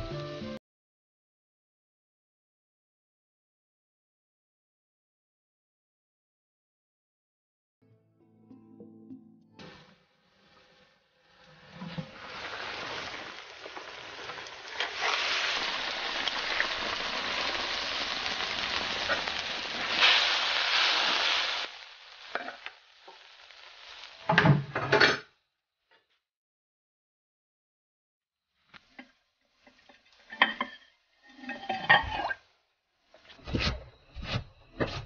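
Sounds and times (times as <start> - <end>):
food sizzling in a wok: 9.6 - 24.9.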